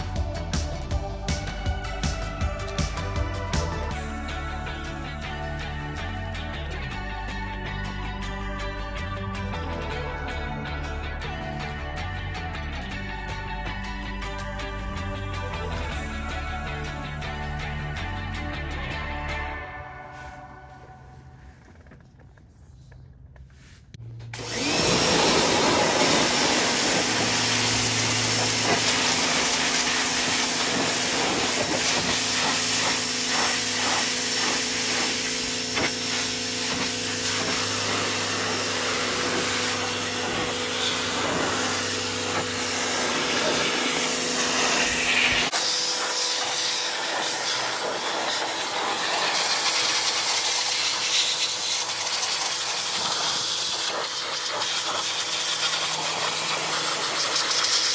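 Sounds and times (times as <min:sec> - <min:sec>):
pressure washer hum: 0:24.0 - 0:57.9
pressure washer water jet hiss: 0:24.4 - 0:57.9.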